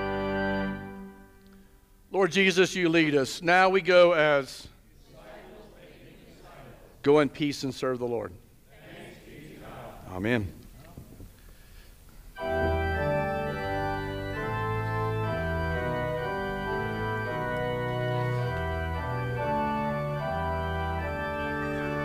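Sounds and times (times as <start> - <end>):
church organ playing chords: 0.0 - 4.6, 12.4 - 22.0.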